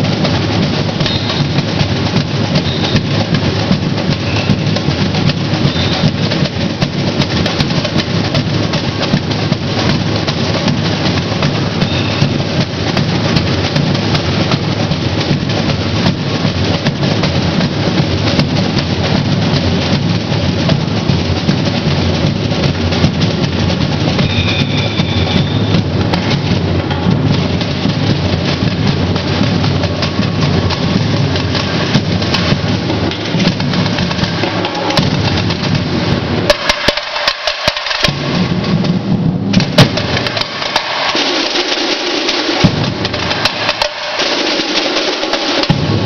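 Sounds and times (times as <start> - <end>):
deep bass drum beat: 0.0 - 41.4, 42.5 - 44.0, 45.6 - 46.0
samba drum ensemble: 0.0 - 46.0.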